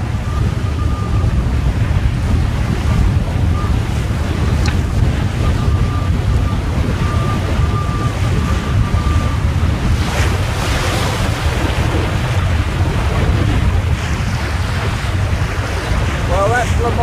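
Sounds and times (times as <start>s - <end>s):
sea water washing along hull: 0.0s - 17.0s
wind buffeting microphone: 0.0s - 17.0s
rush of spray: 9.9s - 17.0s.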